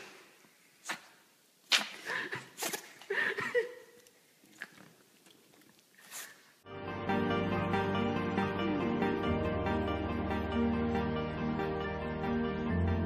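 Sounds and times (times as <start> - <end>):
small dog sneezing: 0.8 - 3.0, 6.0 - 6.5.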